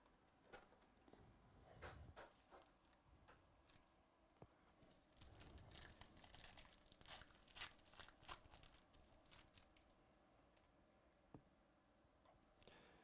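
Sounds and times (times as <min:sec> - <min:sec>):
foil wrapper crinkling and tearing: 0:05.1 - 0:10.0.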